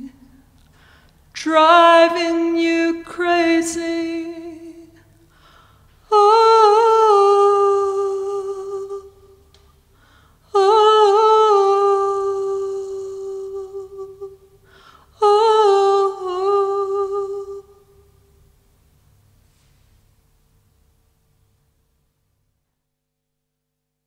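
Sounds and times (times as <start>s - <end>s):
woman singing wordless notes: 0.0s - 0.4s, 1.3s - 5.2s, 6.0s - 9.5s, 10.5s - 18.2s.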